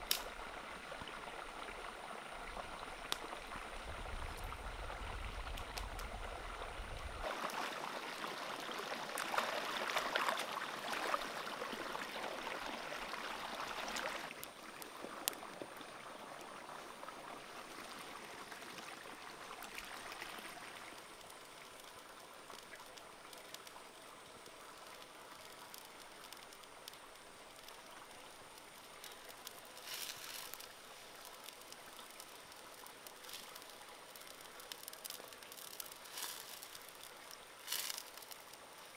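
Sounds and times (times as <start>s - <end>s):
wood fire crackling: 0.0s - 7.5s, 13.0s - 15.8s, 19.6s - 38.9s.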